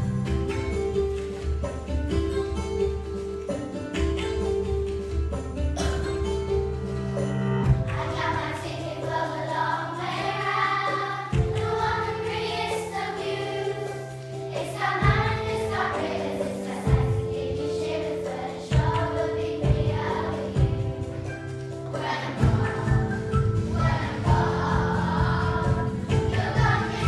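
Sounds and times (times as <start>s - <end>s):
instrumental backing: 0.0s - 27.0s
children's choir singing: 7.7s - 27.0s.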